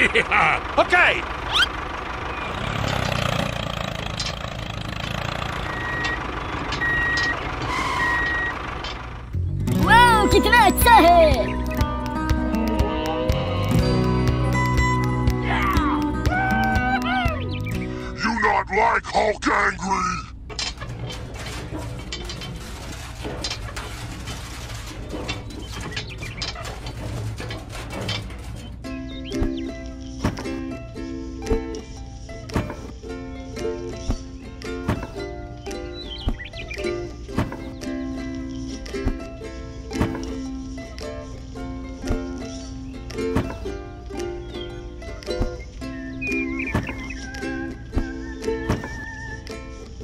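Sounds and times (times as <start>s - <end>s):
small tractor engine hum: 0.0s - 18.3s, 20.3s - 50.0s
reversing alarm beeps: 5.7s - 6.2s, 6.8s - 8.6s.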